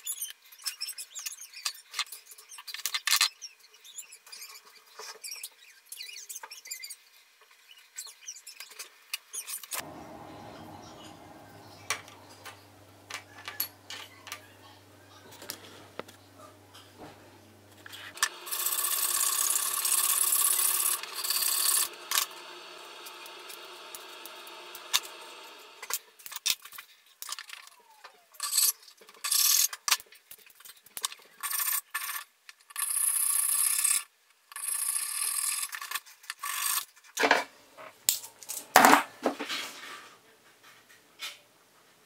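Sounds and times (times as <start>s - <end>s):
steady low hum: 9.8s - 25.9s.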